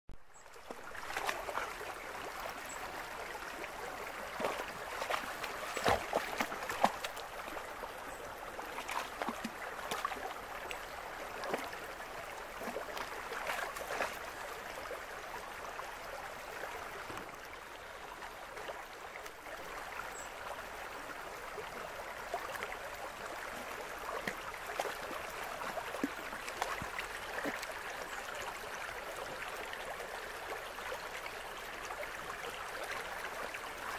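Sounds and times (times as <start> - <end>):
stream running over rocks: 0.3 - 33.9
dog splashing through water: 4.4 - 7.1.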